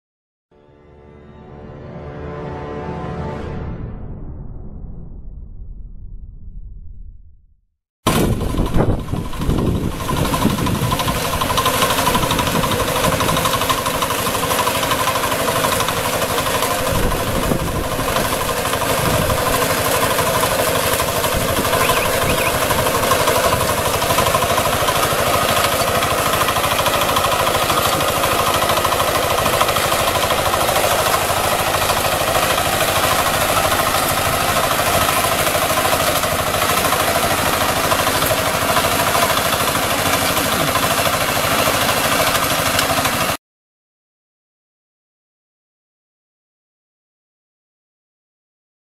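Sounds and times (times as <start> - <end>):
small engine knocking under load: 8.1 - 43.4.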